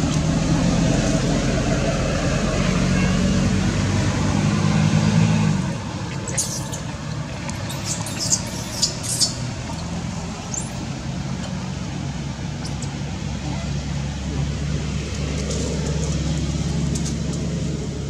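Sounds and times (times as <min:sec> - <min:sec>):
vehicle engine hum: 0:00.0 - 0:18.0
infant monkey squeaking: 0:06.1 - 0:10.9, 0:12.6 - 0:13.7.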